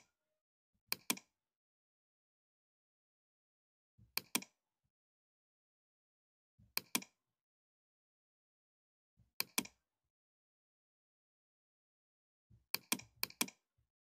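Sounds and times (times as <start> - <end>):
computer mouse clicks: 0.9 - 1.3, 4.2 - 4.6, 6.8 - 7.2, 9.4 - 9.8, 12.7 - 13.6.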